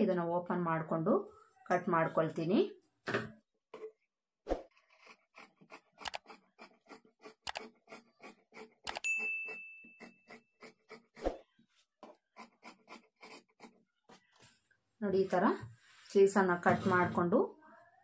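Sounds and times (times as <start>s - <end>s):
scissors snipping fabric: 4.8s - 11.4s
bell-like ding: 9.0s - 10.0s.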